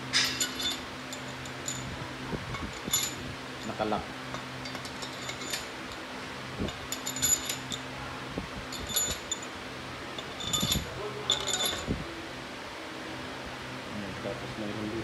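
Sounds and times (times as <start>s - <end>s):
steady low hum: 0.0s - 15.0s
metal bolts clinking: 0.1s - 1.9s, 2.5s - 6.0s, 6.7s - 7.8s, 8.7s - 9.5s, 10.2s - 11.9s.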